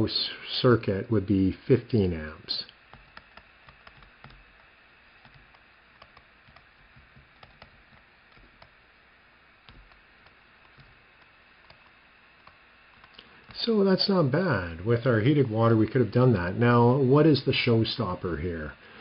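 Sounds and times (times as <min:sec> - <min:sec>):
stylus tapping on tablet screen: 0:02.8 - 0:08.8, 0:09.6 - 0:13.6.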